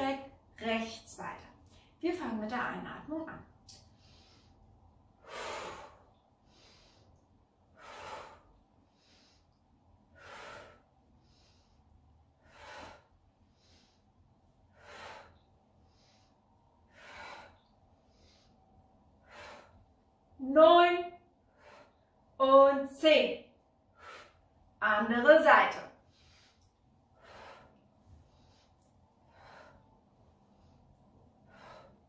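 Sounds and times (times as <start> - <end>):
woman breathing in: 3.7 - 20.4, 21.4 - 22.4, 23.9 - 24.7, 26.0 - 32.0.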